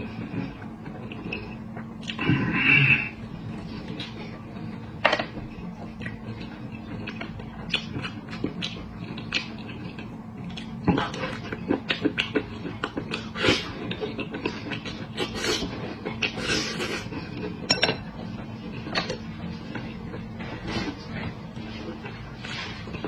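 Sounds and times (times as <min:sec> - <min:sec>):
steady low hum: 0:00.0 - 0:23.0
chewing and lip smacking: 0:00.2 - 0:02.2, 0:05.6 - 0:17.6.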